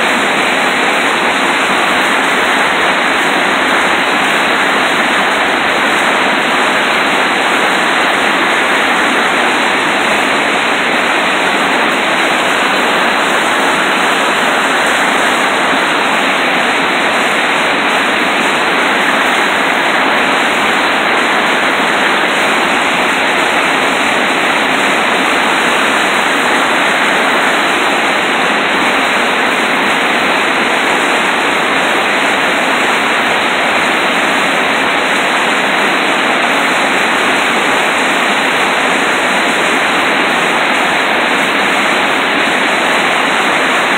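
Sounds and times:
whitewater rushing: 0:00.0 - 0:43.9.

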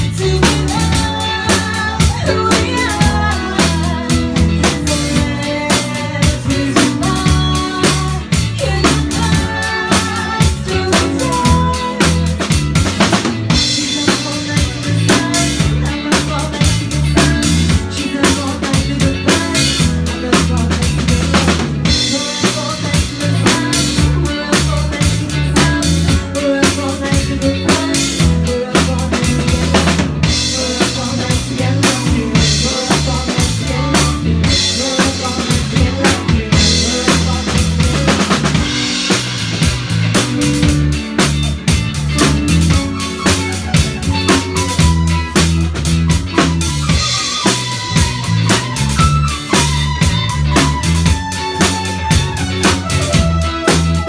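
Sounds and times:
drum kit steady beat: 0:00.0 - 0:54.0
live band playing loudly: 0:00.0 - 0:54.0.

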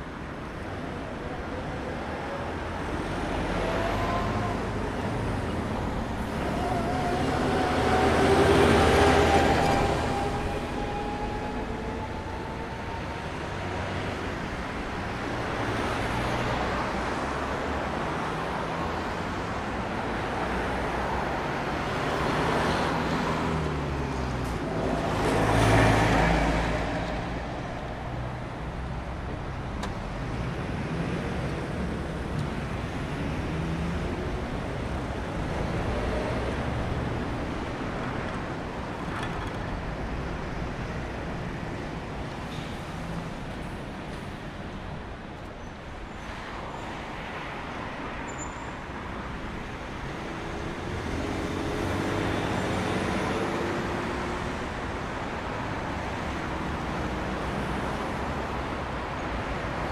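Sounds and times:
cars driving past: 0:02.8 - 0:45.0.

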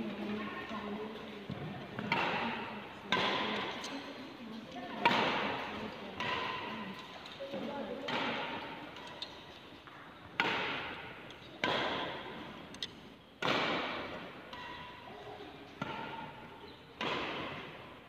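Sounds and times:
badminton racket striking shuttlecock: 0:05.0 - 0:07.1, 0:10.4 - 0:15.1, 0:15.7 - 0:16.4, 0:17.0 - 0:17.9.

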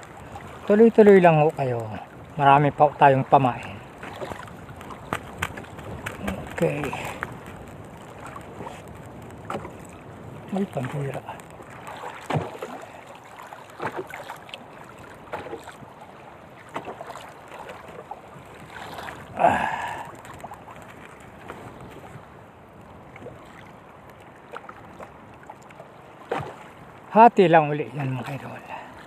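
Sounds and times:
water lapping against boat: 0:00.0 - 0:29.0
wind: 0:00.0 - 0:29.0.

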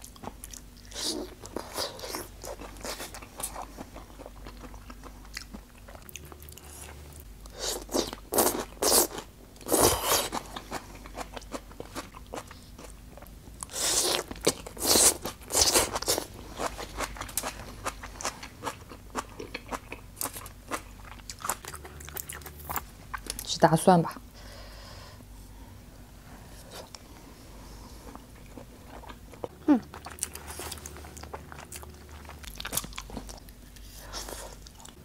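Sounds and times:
crunchy bites and chewing: 0:30.0 - 0:35.0.

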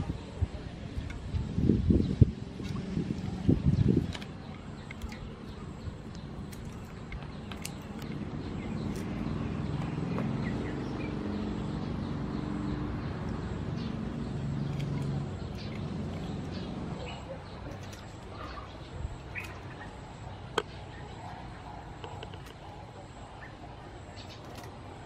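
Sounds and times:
faint birds chirping: 0:00.0 - 0:25.0
scissors snipping: 0:06.1 - 0:09.2.

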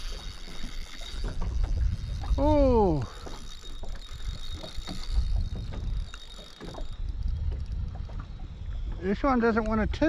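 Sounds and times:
fishing reel clicking: 0:00.0 - 0:08.0
water slapping boat hull: 0:00.0 - 0:10.0
wind buffeting microphone: 0:00.0 - 0:10.0.

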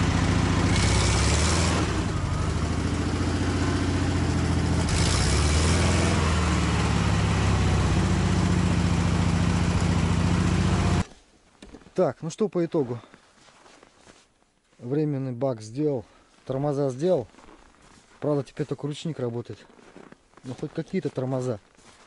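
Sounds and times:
car engine running: 0:00.0 - 0:11.1.

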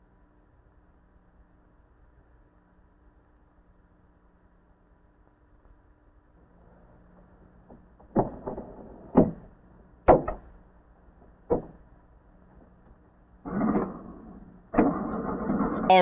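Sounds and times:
sharp knocks: 0:10.1 - 0:10.5, 0:11.5 - 0:11.8.

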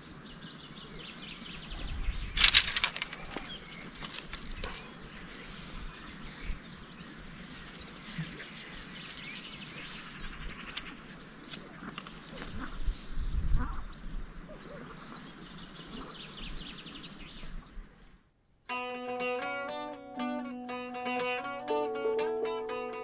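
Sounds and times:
small birds chirping: 0:00.0 - 0:18.3
dry twigs rustling and snapping: 0:02.4 - 0:04.9.

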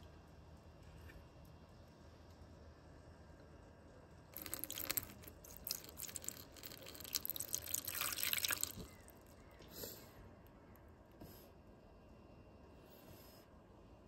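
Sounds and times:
water splashing and dripping: 0:04.4 - 0:08.9.

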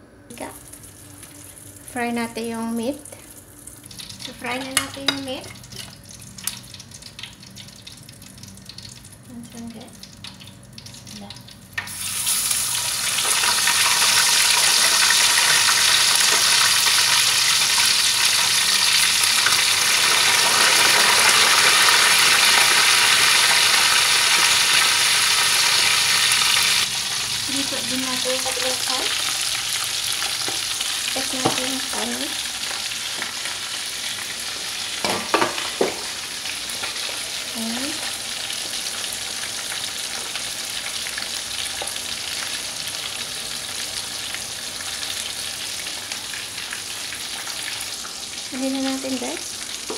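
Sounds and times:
meat sizzling in hot oil: 0:00.3 - 0:49.9.

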